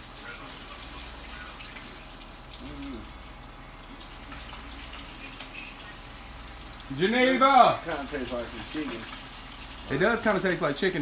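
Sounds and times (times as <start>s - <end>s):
meat sizzling in oil: 0.0s - 11.0s
faint voice: 2.6s - 3.1s.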